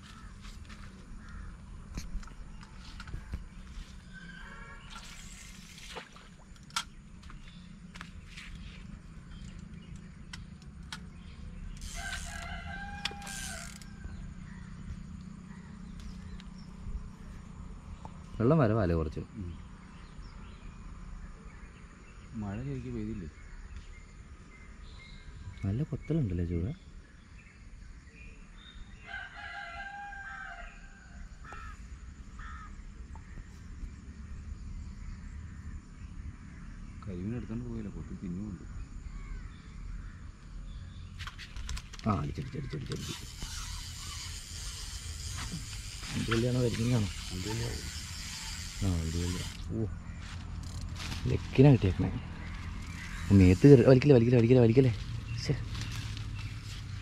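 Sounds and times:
rooster crowing: 11.8 - 14.4, 29.0 - 31.4.

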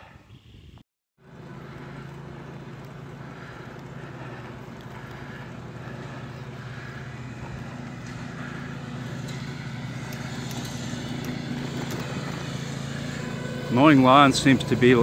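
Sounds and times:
lawn mower engine running: 1.2 - 15.0.

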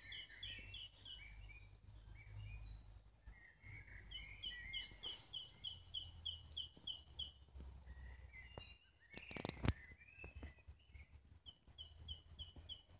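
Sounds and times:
birds chirping softly: 0.0 - 12.9.

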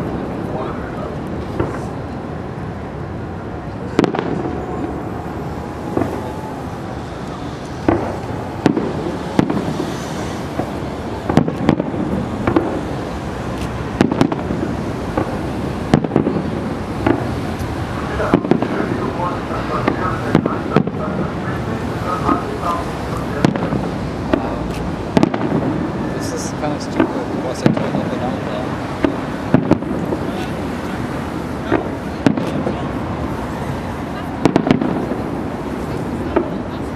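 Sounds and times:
steady background noise: 0.0 - 36.9
firework shells bursting: 7.2 - 18.9.

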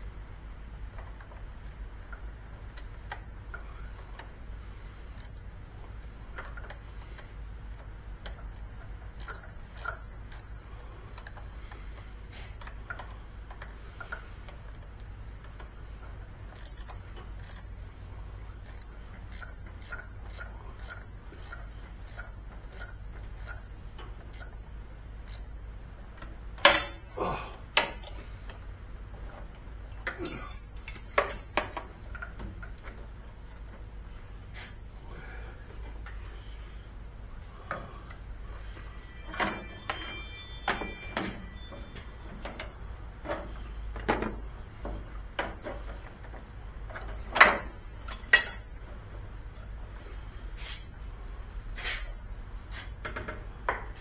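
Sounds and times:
metallic clicks of hand tools: 7.7 - 11.4, 18.6 - 23.6.

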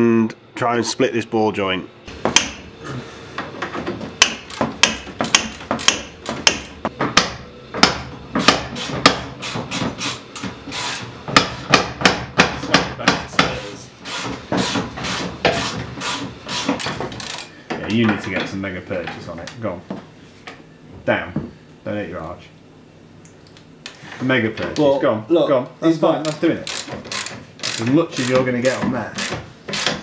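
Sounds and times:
hammer striking metal splitter: 2.2 - 2.7.

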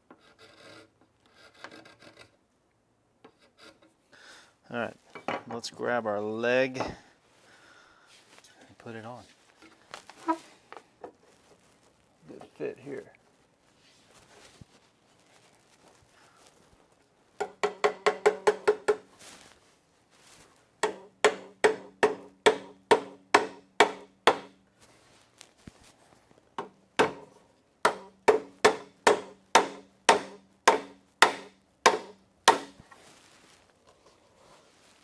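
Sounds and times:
mallet tapping wood: 17.4 - 19.0, 20.8 - 24.5, 27.8 - 32.8.

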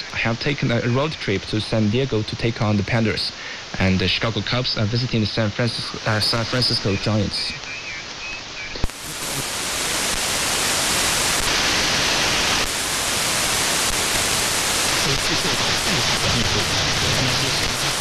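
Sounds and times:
radio static hiss: 0.0 - 18.0.

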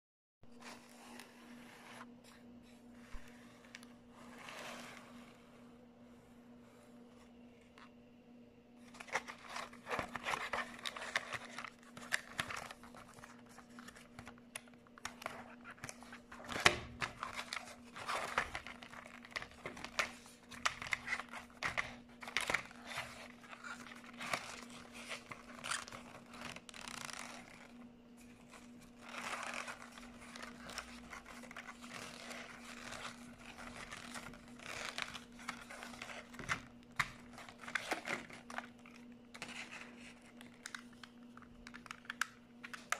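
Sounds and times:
faint steady hum: 0.4 - 42.9
plastic and paper crinkling: 8.8 - 42.9.

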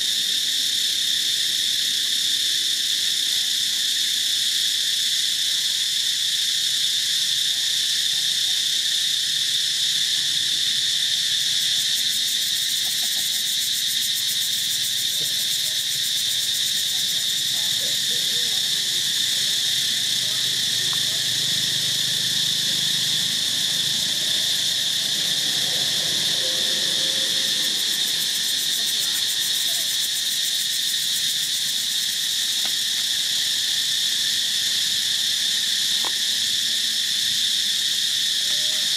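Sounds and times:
insects droning: 0.0 - 38.9.

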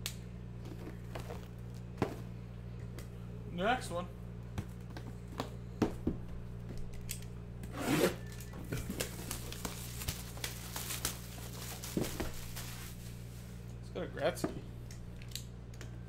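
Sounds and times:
low electrical hum: 0.0 - 16.0
plastic wrap crinkling: 8.2 - 13.6.

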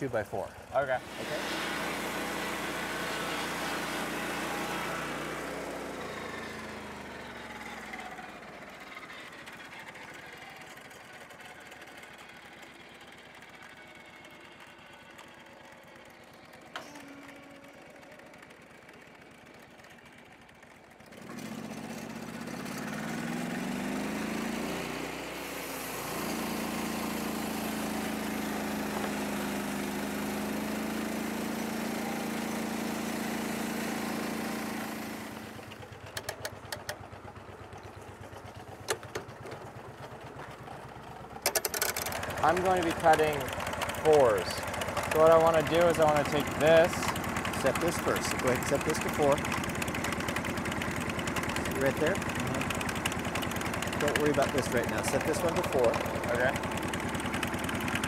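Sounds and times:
sawmill engine idling and revving: 0.0 - 58.0
saw blade cutting log: 1.0 - 7.0, 21.2 - 35.6, 41.5 - 50.2, 53.4 - 56.8.

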